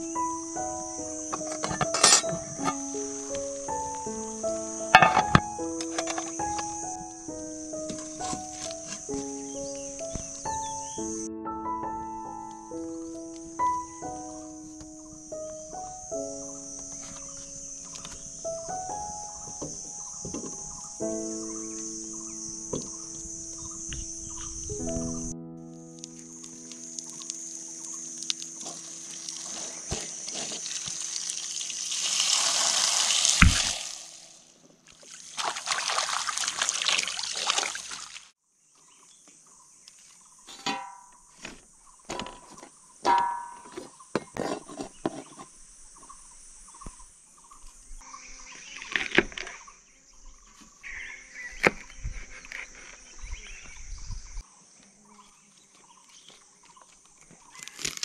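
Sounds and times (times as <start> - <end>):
high-pitched insect drone: 0.0 - 11.3, 12.2 - 25.3, 26.0 - 34.3
water splashing into steel bowl: 28.6 - 34.3, 34.9 - 38.3.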